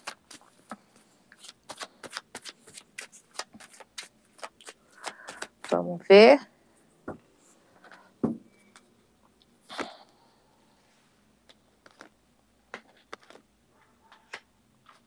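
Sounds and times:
cards tapping and clicking: 0:00.0 - 0:05.8.

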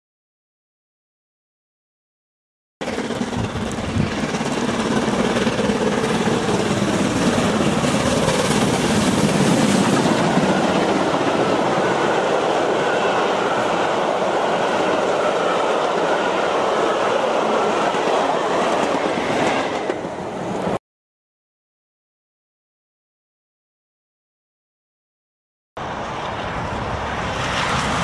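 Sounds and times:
steam train passing: 0:02.8 - 0:20.8, 0:25.8 - 0:28.0.

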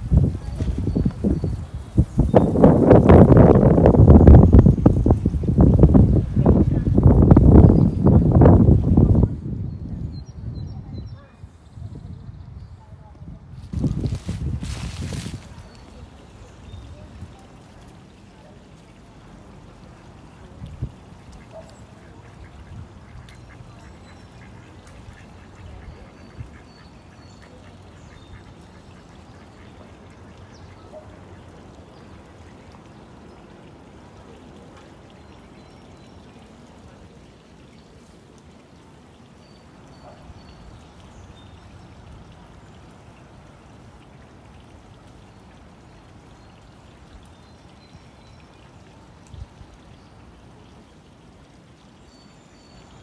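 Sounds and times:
creek water rushing: 0:00.0 - 0:09.3, 0:13.6 - 0:53.0
ducks quacking: 0:21.2 - 0:31.0.

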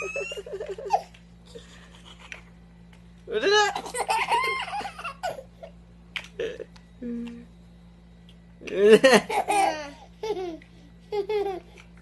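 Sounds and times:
young child giggling: 0:00.0 - 0:02.5, 0:03.7 - 0:05.5, 0:08.9 - 0:11.8.

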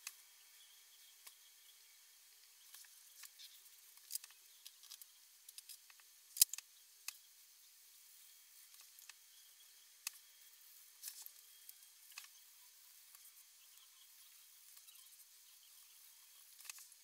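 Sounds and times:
paper rustling and clicking: 0:16.5 - 0:17.0.

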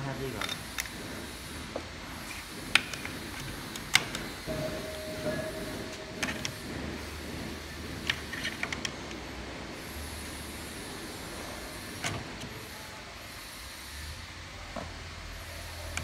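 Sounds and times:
steady low hum: 0:00.6 - 0:13.1.

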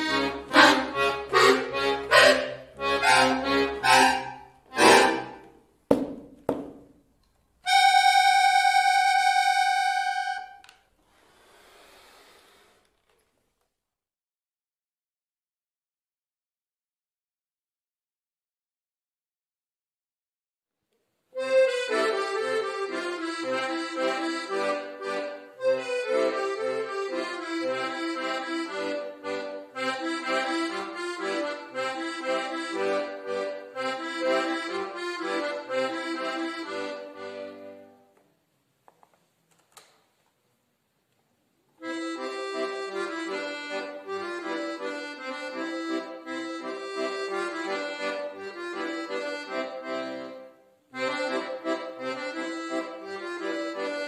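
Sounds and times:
accordion music: 0:00.0 - 0:06.8, 0:07.6 - 0:10.9, 0:21.3 - 0:38.2, 0:41.8 - 0:54.0.

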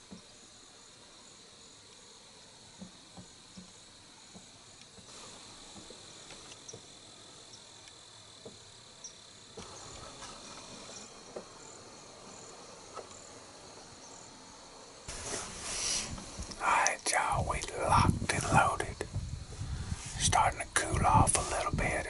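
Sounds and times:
high-pitched insect trill: 0:00.3 - 0:22.0
breathy whisper: 0:15.4 - 0:22.0.

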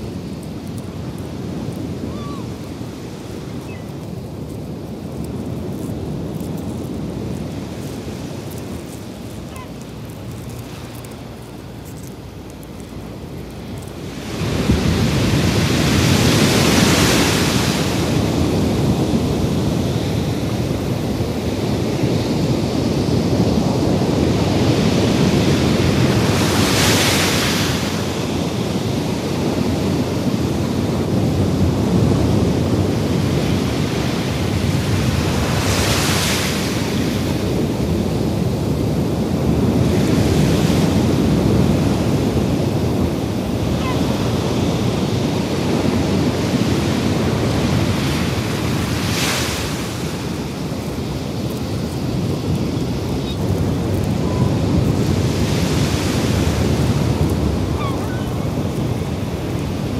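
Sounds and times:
ocean waves washing ashore: 0:00.0 - 0:59.9.

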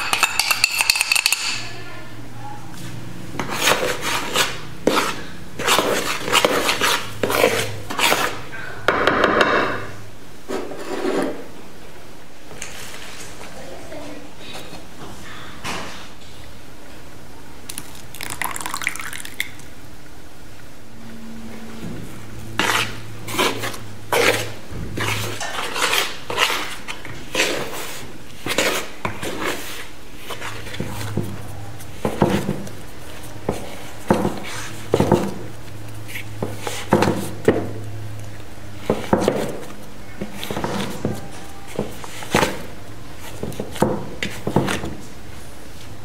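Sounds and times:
spoon scraping plastic bowl: 0:03.4 - 0:08.5, 0:22.4 - 0:37.8.

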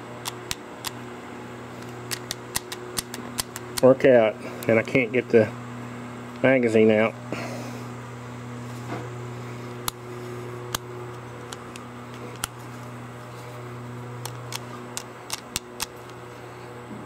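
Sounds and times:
steady low hum: 0:00.0 - 0:17.0
pistol metallic clicks: 0:01.8 - 0:03.9, 0:14.2 - 0:16.2.

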